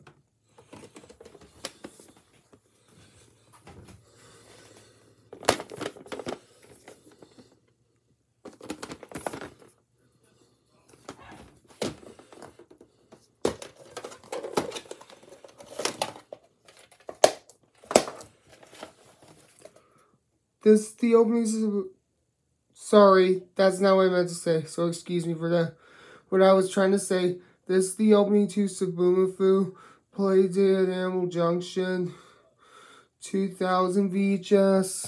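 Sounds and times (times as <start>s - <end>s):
rustling and crinkling: 0.0s - 7.7s, 8.4s - 9.8s, 10.8s - 19.9s.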